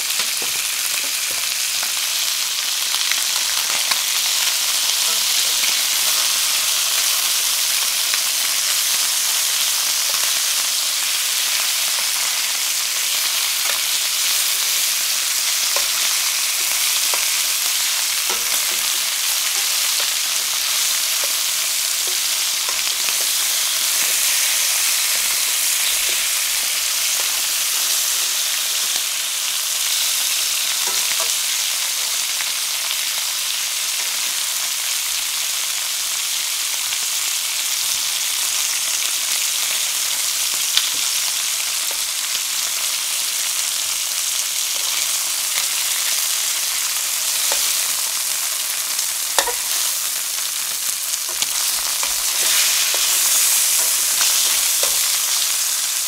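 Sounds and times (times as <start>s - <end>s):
chicken sizzling in pan: 0.0s - 56.0s
tongs clicking: 49.4s - 49.9s.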